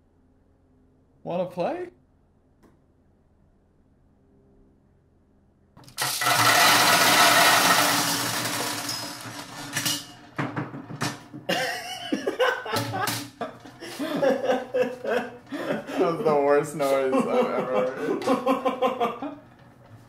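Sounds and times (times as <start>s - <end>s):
loud harsh noise: 5.9s - 10.2s.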